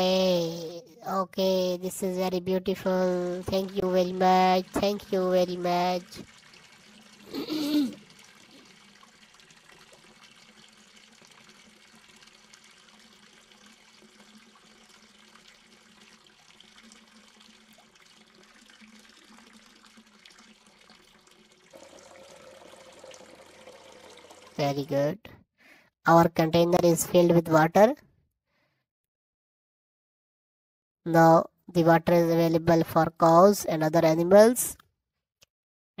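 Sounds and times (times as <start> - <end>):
water pouring into steel cup: 3.4 - 24.9.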